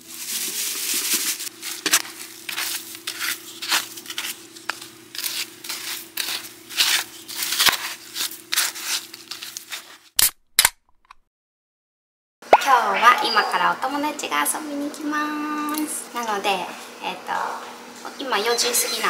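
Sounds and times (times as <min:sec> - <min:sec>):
plastic scoop scraping soil: 0:00.2 - 0:10.0.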